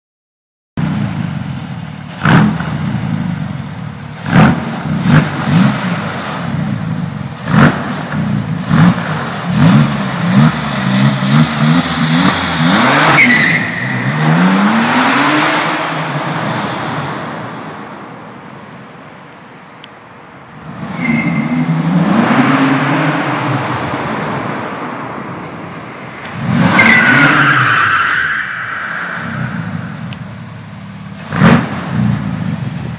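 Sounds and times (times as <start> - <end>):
sports car engine revving: 0.8 - 17.0, 29.0 - 32.9
tyre squeal: 13.1 - 14.0, 20.9 - 21.7, 26.6 - 29.8.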